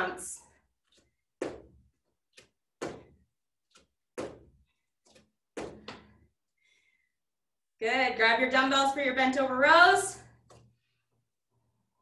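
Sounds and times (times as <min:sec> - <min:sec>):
feet thudding on floor: 0:01.4 - 0:06.2.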